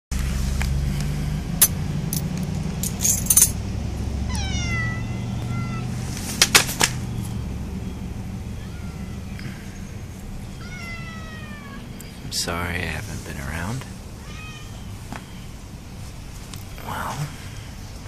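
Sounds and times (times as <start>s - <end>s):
steady low hum: 0.2s - 18.0s
cat meowing: 4.3s - 6.0s, 8.5s - 9.4s, 10.5s - 12.0s, 14.2s - 15.0s.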